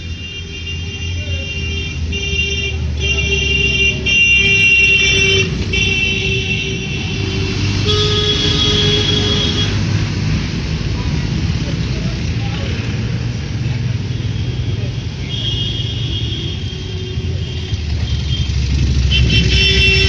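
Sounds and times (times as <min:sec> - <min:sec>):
street traffic engines: 0:00.0 - 0:20.0
vehicle horn blasts: 0:00.2 - 0:09.8, 0:19.0 - 0:20.0.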